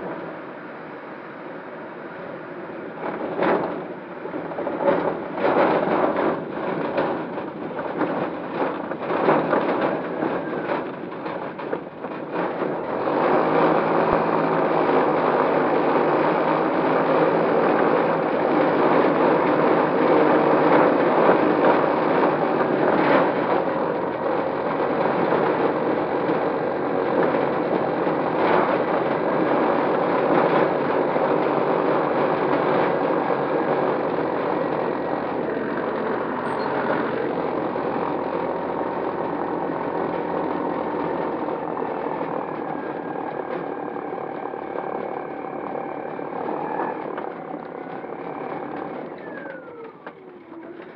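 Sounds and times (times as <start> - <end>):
electric motor and propeller running: 12.6 - 50.9.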